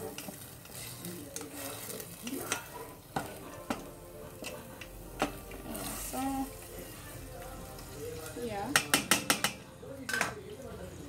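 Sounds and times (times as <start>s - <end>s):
chicken sizzling in hot oil: 0.0s - 11.0s
utensil knocking against pot: 8.7s - 10.3s.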